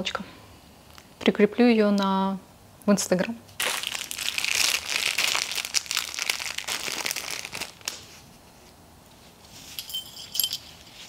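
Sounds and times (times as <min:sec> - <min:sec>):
packaging crinkling: 0:03.5 - 0:08.1.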